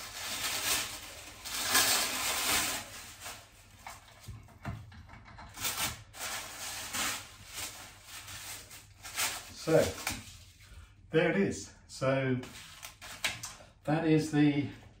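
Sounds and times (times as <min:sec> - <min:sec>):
paper wrapping rustling: 0:00.0 - 0:04.3, 0:05.5 - 0:10.6, 0:12.5 - 0:13.4.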